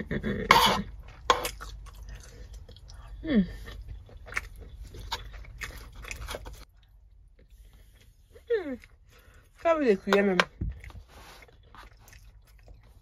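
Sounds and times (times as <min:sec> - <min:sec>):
person chewing food: 0:00.0 - 0:09.6, 0:10.5 - 0:13.0.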